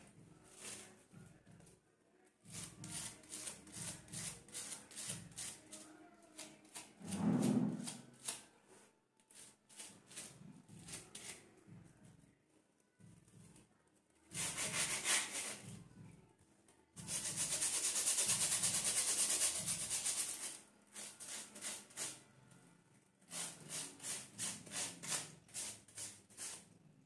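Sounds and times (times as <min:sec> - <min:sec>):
comb scraping through hairbrush: 0:02.5 - 0:08.4.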